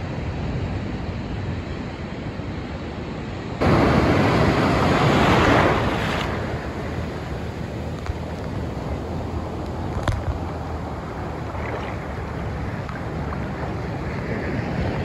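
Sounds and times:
wind on microphone: 0.0s - 15.0s
surf: 3.6s - 15.0s
wave breaking: 3.6s - 15.0s.

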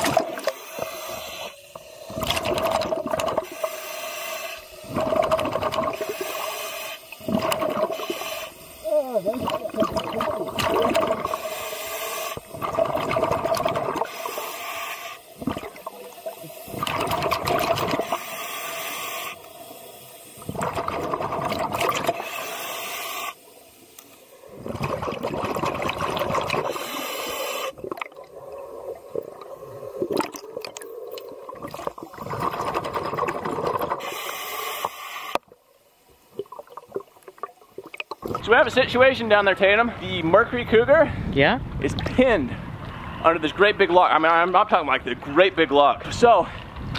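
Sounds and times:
exhaled bubbles rushing: 0.0s - 0.9s, 1.7s - 3.6s, 4.8s - 6.4s, 7.1s - 8.2s, 9.1s - 11.5s, 12.3s - 14.5s, 15.3s - 18.2s, 20.4s - 22.3s, 24.3s - 27.0s, 27.6s - 34.1s, 36.3s - 38.6s
hissing regulator inhalations: 0.2s - 35.6s.

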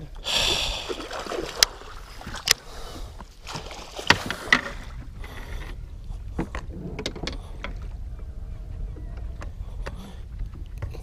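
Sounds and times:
water splash: 0.8s - 2.6s, 3.4s - 5.0s
water slapping against boat: 0.8s - 2.7s, 3.3s - 5.1s.

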